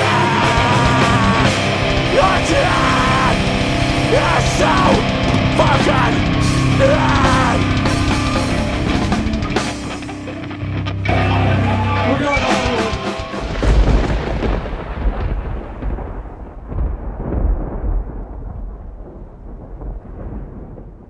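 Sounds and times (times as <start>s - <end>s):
deep rolling rumble: 0.0s - 11.9s
hardcore band playing live: 0.0s - 14.6s.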